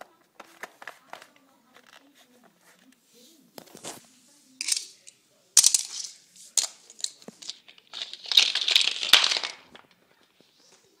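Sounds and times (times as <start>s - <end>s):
plastic toys rattling: 4.6s - 10.4s.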